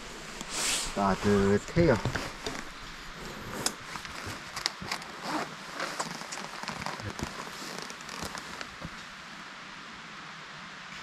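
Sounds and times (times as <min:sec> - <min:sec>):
jacket and backpack rustling: 0:00.0 - 0:09.3.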